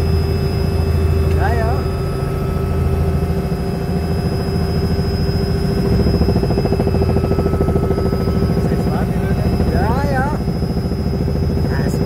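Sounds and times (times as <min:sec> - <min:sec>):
helicopter engine and rotor drone: 0:00.0 - 0:12.0.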